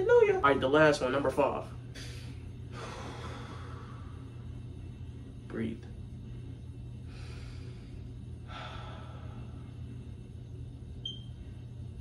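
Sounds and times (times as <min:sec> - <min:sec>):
steady low hum: 0:00.0 - 0:12.0
man breathing deeply: 0:01.9 - 0:04.4, 0:07.0 - 0:09.9.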